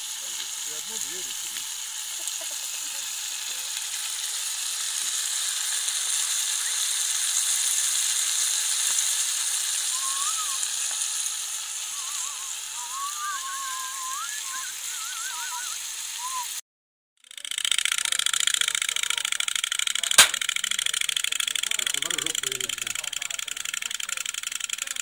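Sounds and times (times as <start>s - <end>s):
meat sizzling: 0.0s - 16.6s, 17.5s - 25.0s
thin wavering whistled notes: 6.5s - 7.0s, 9.8s - 11.0s, 11.7s - 16.6s.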